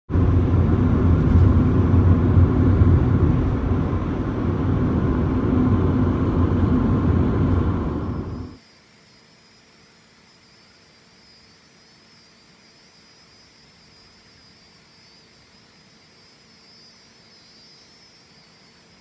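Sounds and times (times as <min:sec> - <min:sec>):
tyre and wind road noise: 0:00.1 - 0:08.6.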